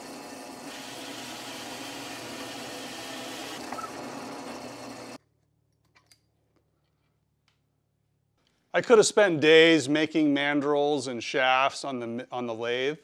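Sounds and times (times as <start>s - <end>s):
drill press cutting wood: 0.0s - 5.2s.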